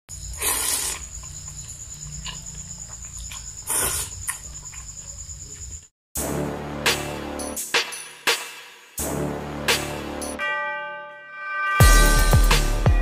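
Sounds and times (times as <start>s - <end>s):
person slurping noodles: 0.3s - 1.2s, 3.7s - 4.2s
music: 6.2s - 13.0s.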